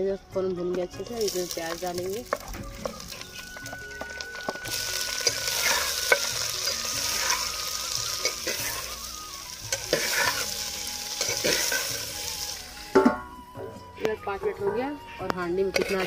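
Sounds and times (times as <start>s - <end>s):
onions sizzling in hot oil: 1.0s - 13.5s
metal spoon scraping pot: 15.6s - 16.0s.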